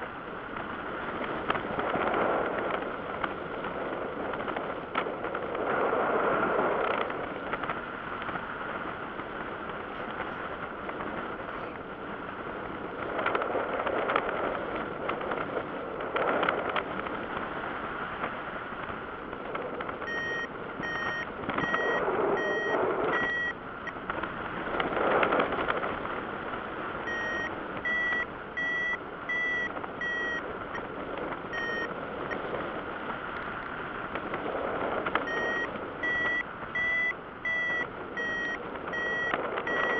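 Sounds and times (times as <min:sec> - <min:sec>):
wind noise on microphone: 0:00.0 - 0:39.9
variometer short beeps: 0:20.0 - 0:24.0, 0:27.1 - 0:30.9, 0:31.5 - 0:32.4, 0:35.2 - 0:39.9.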